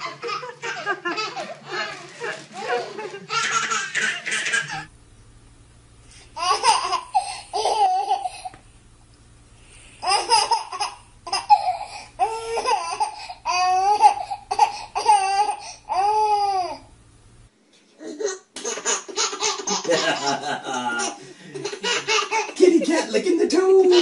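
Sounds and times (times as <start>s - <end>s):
baby laughing: 0.0s - 4.9s, 6.4s - 8.5s, 10.0s - 16.8s, 18.0s - 22.7s.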